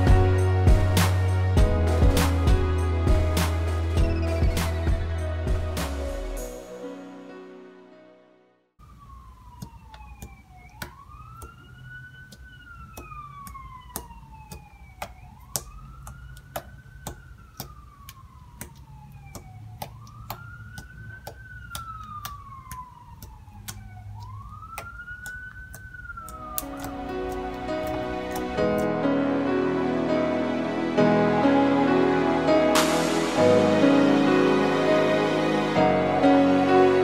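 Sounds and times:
faint siren wailing: 0:08.8 - 0:37.0
slime clicking and popping: 0:09.5 - 0:28.5.

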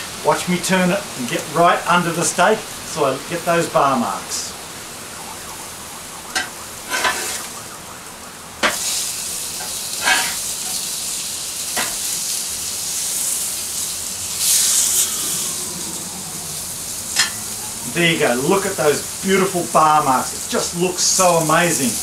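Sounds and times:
steaks sizzling on a grill: 0:05.2 - 0:22.0
metal spatula scraping: 0:06.9 - 0:07.4, 0:10.0 - 0:10.8.

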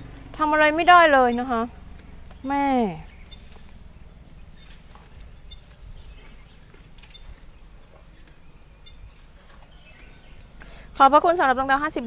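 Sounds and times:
low background rumble: 0:00.0 - 0:07.9
high-pitched insect drone: 0:00.0 - 0:12.0
faint ticks: 0:01.9 - 0:02.5.

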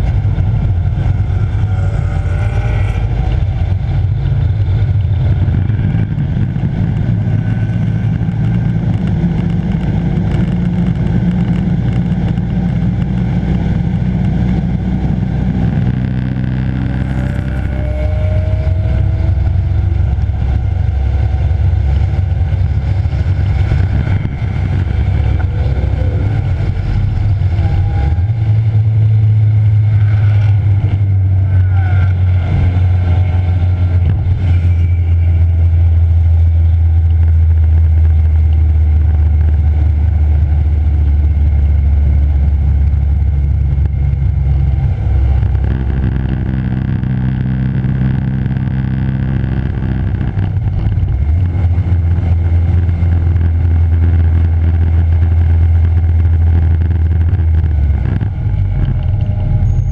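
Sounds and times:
car engine running hard: 0:00.0 - 0:59.9
wind noise: 0:00.0 - 0:59.9.

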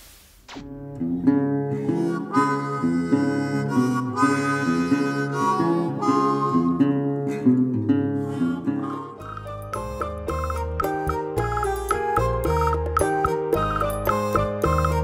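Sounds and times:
instrumental intro music: 0:08.7 - 0:15.0.

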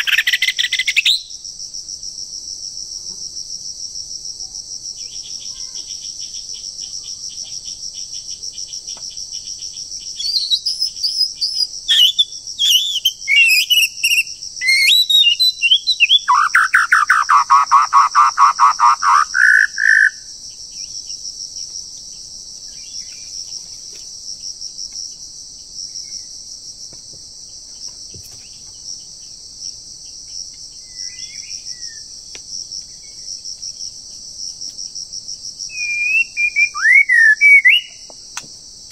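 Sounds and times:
high drone of insects: 0:00.0 - 0:38.9
bird singing whistled phrases: 0:10.2 - 0:20.2, 0:35.7 - 0:38.0.

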